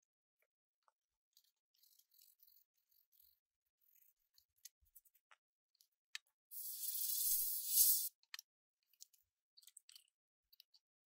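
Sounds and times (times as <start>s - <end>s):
bristle brush scrubbing circuit board: 6.5s - 8.1s.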